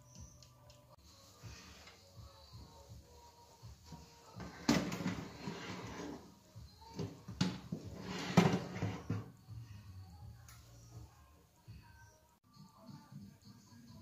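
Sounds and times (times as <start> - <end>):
metal tray scraping on oven rack: 8.0 - 9.2.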